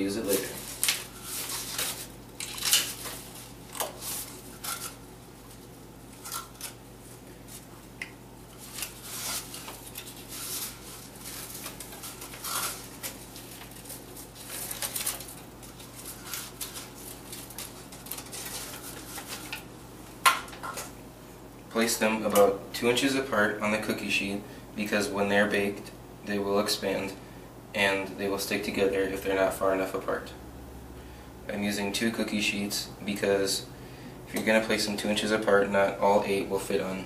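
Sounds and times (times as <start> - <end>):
faint steady hum: 0.0 - 37.0.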